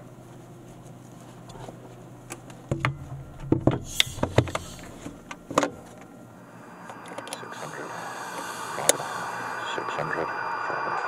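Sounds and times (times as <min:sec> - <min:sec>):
low steady hum: 0:00.0 - 0:11.0
hatch knocks and thuds: 0:02.7 - 0:05.8.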